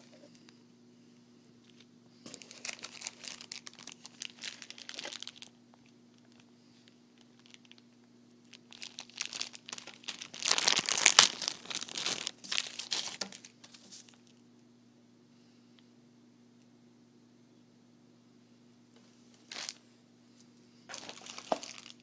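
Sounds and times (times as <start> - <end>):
plastic bags crinkling: 2.2 - 6.4, 7.2 - 7.8, 8.5 - 14.4, 19.4 - 19.8, 20.9 - 22.0.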